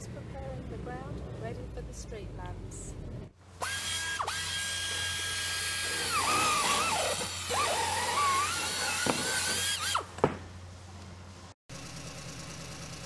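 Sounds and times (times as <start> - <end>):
small electric motor whine: 3.6 - 10.1.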